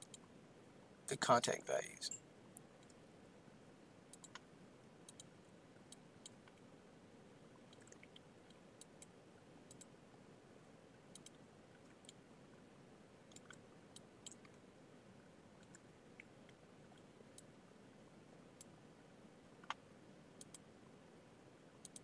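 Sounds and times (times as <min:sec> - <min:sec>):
computer mouse and keyboard clicks: 0:00.0 - 0:00.3, 0:04.1 - 0:04.5, 0:05.1 - 0:05.3, 0:07.7 - 0:09.1, 0:09.7 - 0:09.9, 0:11.1 - 0:12.2, 0:13.3 - 0:14.6, 0:15.6 - 0:15.8, 0:19.6 - 0:19.8, 0:20.4 - 0:20.7
low steady hiss: 0:00.0 - 0:22.0.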